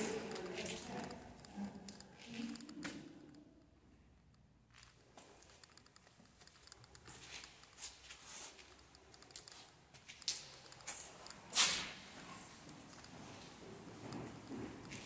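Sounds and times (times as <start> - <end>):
footstep scuffs: 6.3 - 8.9.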